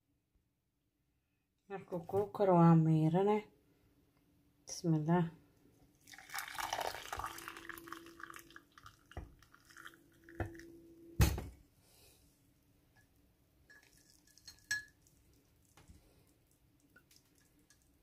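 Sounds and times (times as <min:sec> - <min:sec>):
tea trickling through strainer: 0:05.9 - 0:10.8, 0:13.7 - 0:18.0.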